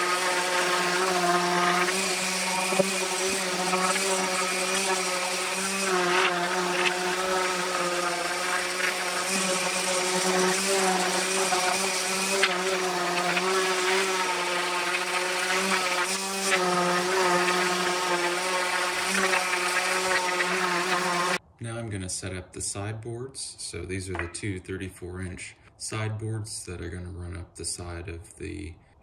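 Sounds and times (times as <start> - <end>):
orbit sander on wood: 0.0 - 21.4
sander knocking on wood: 0.0 - 21.4.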